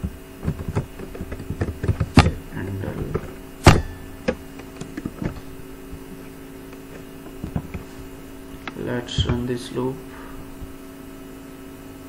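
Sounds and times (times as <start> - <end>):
electrical mains hum: 0.0 - 12.0.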